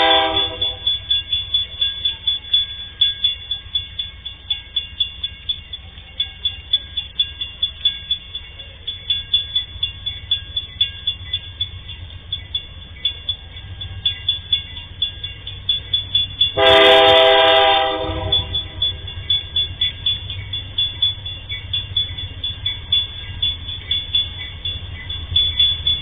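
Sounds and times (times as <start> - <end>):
locomotive horn blast: 0.0 - 1.0, 16.6 - 19.0
rapid regular ticking: 0.0 - 16.8, 18.3 - 26.0
locomotive rumble: 0.0 - 26.0.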